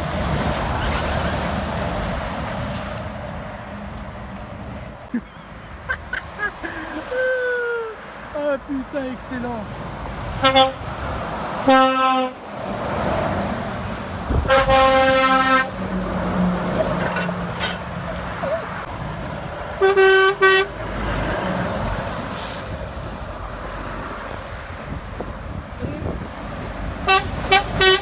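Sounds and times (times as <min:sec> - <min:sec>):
diesel engines and tyre noise: 0:00.0 - 0:28.0
truck horn blasts: 0:10.4 - 0:10.8, 0:11.6 - 0:12.4, 0:14.4 - 0:15.9, 0:19.8 - 0:20.8, 0:27.0 - 0:28.0.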